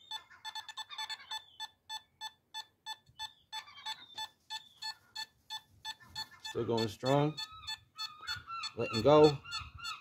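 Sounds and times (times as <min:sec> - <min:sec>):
metal detector beeping: 0:00.0 - 0:10.0.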